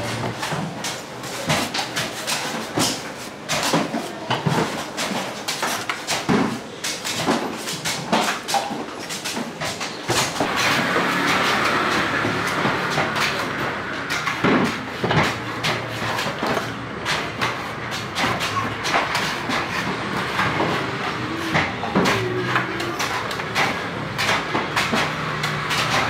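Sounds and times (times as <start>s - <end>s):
sharp knocks and clacks: 0.0s - 26.0s
engine running: 10.4s - 14.3s.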